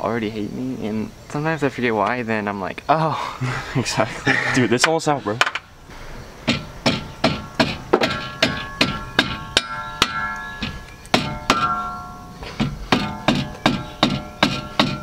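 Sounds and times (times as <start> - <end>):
mallet blows on metal bolt: 6.5 - 15.0
metallic ring: 6.5 - 15.0.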